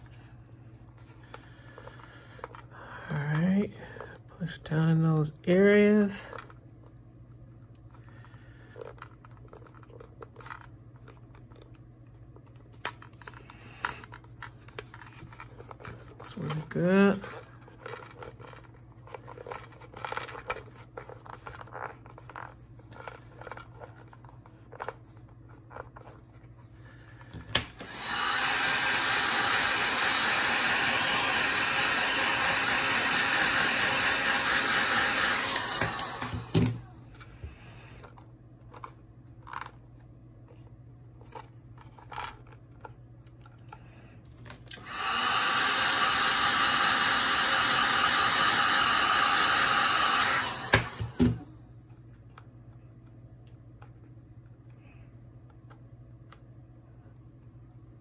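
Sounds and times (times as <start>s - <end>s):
heat gun blowing air: 27.7s - 37.0s, 44.7s - 51.6s.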